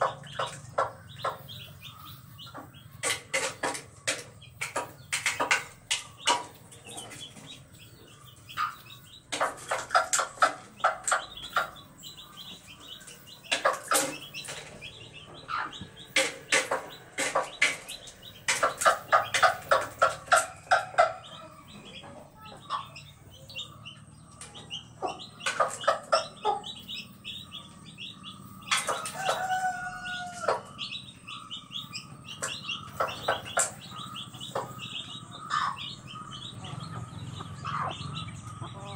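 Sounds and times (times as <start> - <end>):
chickens clucking and squawking: 0.0 - 38.9
drawn-out chicken call: 28.4 - 31.4.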